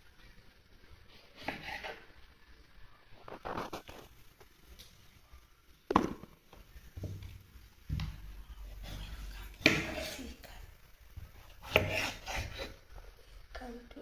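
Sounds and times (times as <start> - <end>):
knife scraping on wooden cutting board: 1.4 - 2.0, 11.4 - 12.8.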